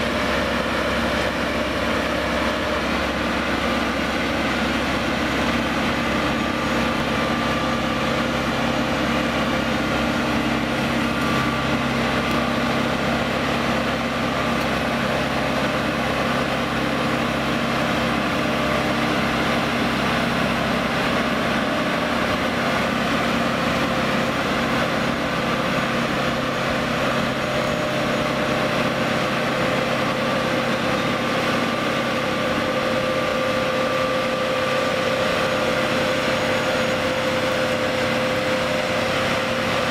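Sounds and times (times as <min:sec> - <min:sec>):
machine engine humming: 0:00.0 - 0:39.9.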